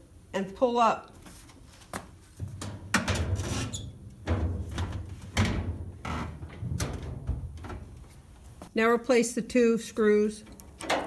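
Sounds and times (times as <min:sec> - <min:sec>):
metal panel clunking: 0:02.4 - 0:08.0
metal scraping and rattling: 0:02.4 - 0:08.0.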